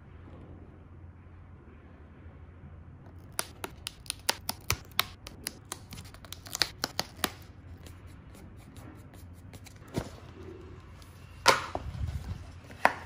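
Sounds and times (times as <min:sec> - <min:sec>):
paperboard tabs snapping: 0:03.1 - 0:07.9.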